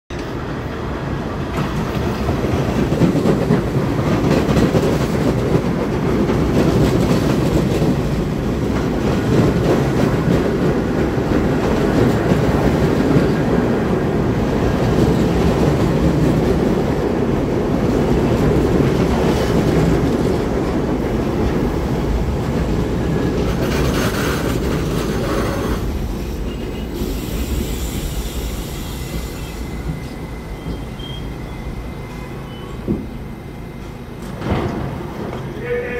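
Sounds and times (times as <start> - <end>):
train wheels rumbling on rails: 0.1 - 35.9
train brakes squealing: 25.1 - 34.0
air hiss: 25.4 - 30.3.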